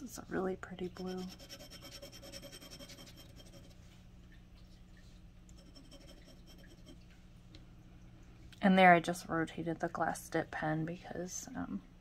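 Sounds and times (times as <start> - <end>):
pen nib scratching on paper: 1.0 - 3.8, 5.6 - 6.9.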